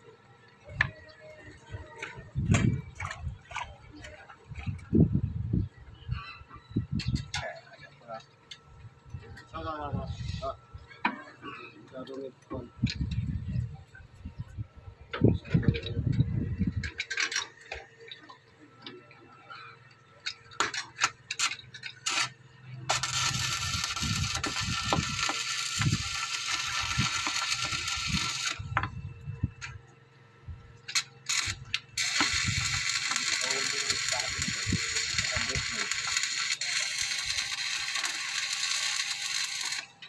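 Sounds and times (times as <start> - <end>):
arc welding crackling sizzle: 20.3 - 29.8, 30.8 - 40.0.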